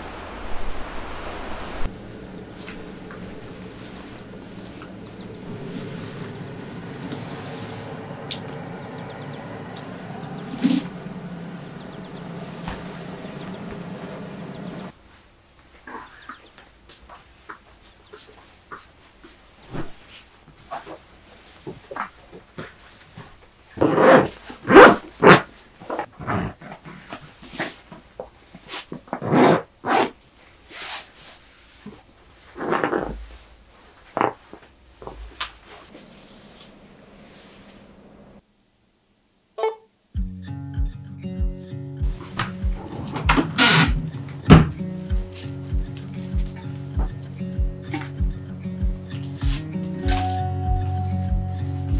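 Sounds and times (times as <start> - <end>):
dryer fan hum: 0.0 - 14.9, 42.0 - 49.6
short high beep: 8.3 - 8.9
zipper pulled: 23.8 - 27.8, 28.7 - 30.2, 32.5 - 33.4.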